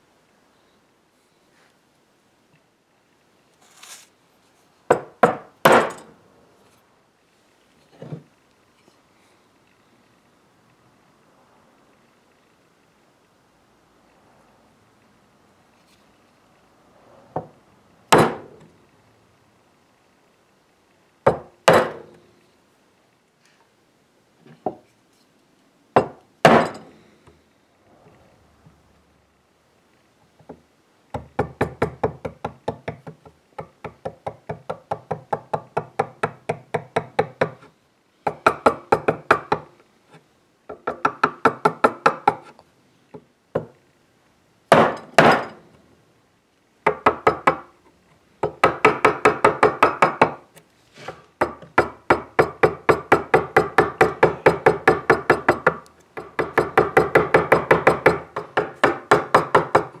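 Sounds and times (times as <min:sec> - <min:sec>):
mallet tapping steel chisel: 0:51.4 - 1:00.0.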